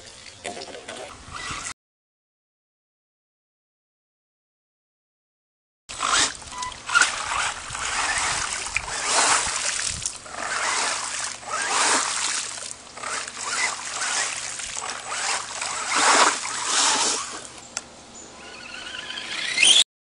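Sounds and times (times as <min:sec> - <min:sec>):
tyres splashing through mud puddle: 0:05.9 - 0:17.5.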